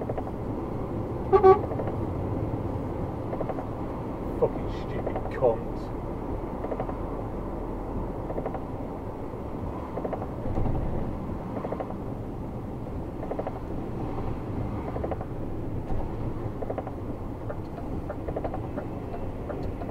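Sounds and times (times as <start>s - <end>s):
lorry engine and road noise: 0.0s - 19.9s
windscreen wipers swishing: 6.2s - 19.9s.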